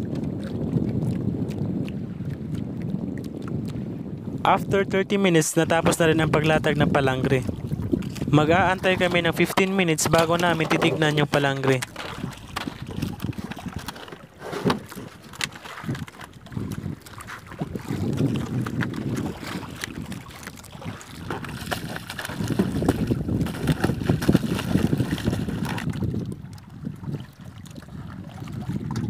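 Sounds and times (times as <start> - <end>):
water sloshing against boat hull: 0.0 - 29.0
wind buffeting microphone: 0.0 - 29.0
small knocks: 9.6 - 12.8.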